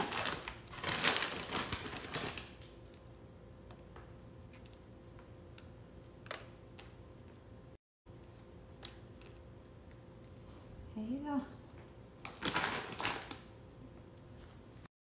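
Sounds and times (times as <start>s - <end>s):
plastic bag rustling: 0.0s - 2.6s, 12.2s - 13.5s.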